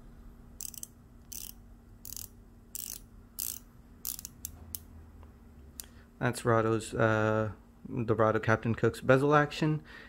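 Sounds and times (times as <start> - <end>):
watch bezel ratcheting clicks: 0.6 - 4.9.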